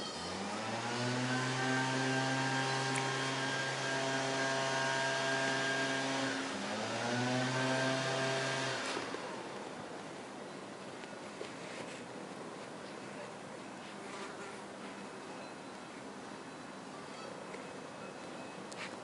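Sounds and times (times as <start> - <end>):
engine running: 0.0 - 10.4.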